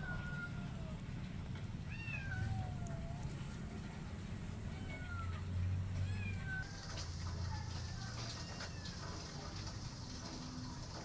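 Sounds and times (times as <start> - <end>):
kitten meowing: 0.0 - 1.0, 1.8 - 3.3, 4.7 - 6.7.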